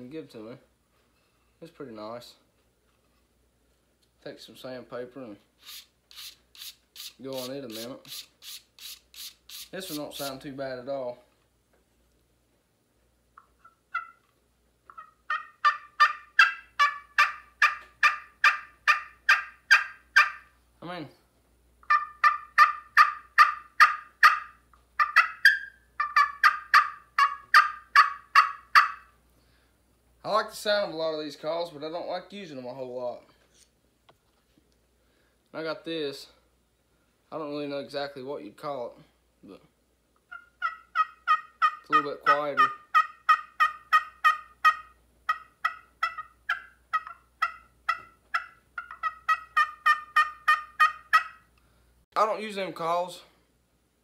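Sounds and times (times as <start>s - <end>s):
turkey call yelping: 13.6s - 14.3s, 14.9s - 20.5s, 21.8s - 29.2s, 40.3s - 51.5s.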